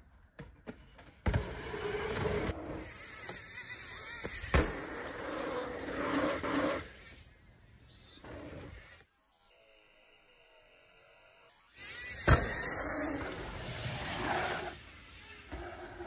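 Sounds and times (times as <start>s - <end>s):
bike tyres rolling on dirt: 0.1s - 9.0s, 11.9s - 16.0s.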